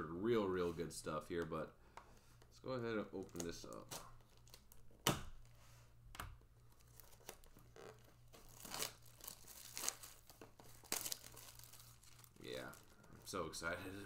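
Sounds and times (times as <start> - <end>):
plastic shrink wrap tearing: 3.2 - 4.8, 6.7 - 13.4.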